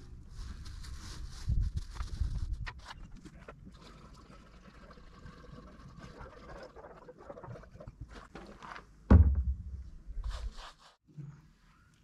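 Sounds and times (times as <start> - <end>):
liquid pouring from a jug: 3.6 - 8.6
loud thump: 9.1 - 10.0.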